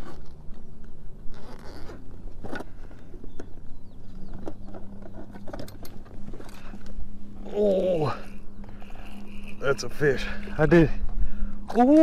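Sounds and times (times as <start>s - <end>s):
low hum: 0.0s - 12.0s
fishing reel clicks and knocks: 4.3s - 10.6s.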